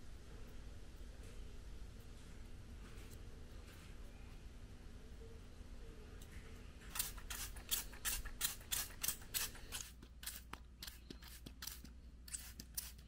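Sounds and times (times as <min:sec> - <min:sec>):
spray bottle squirts: 0:06.9 - 0:13.0.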